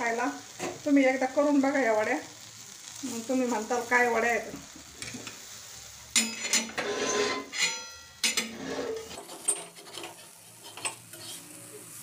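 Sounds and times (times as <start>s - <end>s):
metal spatula scraping on iron pan: 6.1s - 11.6s.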